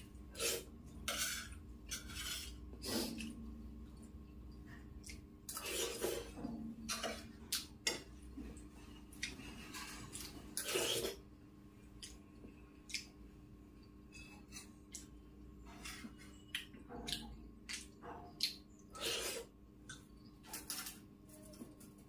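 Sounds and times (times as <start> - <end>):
faint steady hum: 0.0 - 22.0
steel spoon scraping a plate: 0.3 - 3.2, 5.5 - 7.2, 14.1 - 14.8, 19.0 - 19.5.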